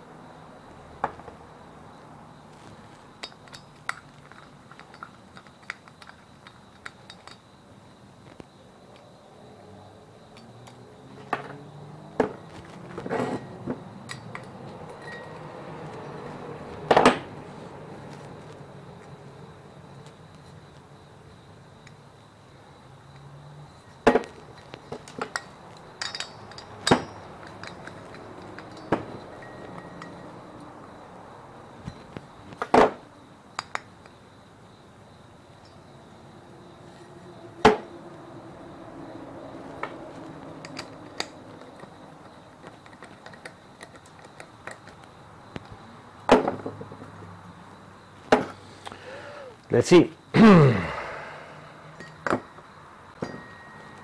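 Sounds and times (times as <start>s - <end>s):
metal clinks and knocks: 2.6s - 7.6s, 10.3s - 11.6s, 12.2s - 17.3s, 23.8s - 30.7s, 33.6s - 34.2s, 39.8s - 45.2s, 52.0s - 54.0s.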